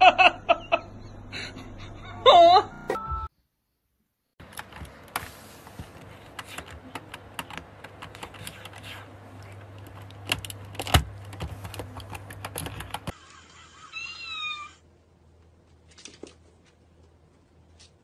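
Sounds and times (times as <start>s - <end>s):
keyboard keys clacking: 4.4s - 5.3s, 5.9s - 13.1s.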